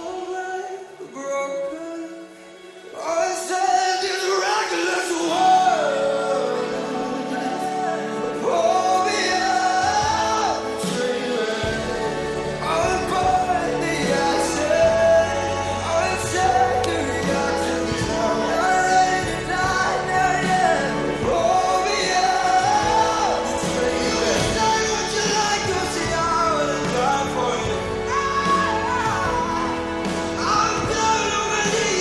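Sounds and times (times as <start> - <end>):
song with lead vocal and band: 0.0 - 32.0
bass line: 8.0 - 32.0.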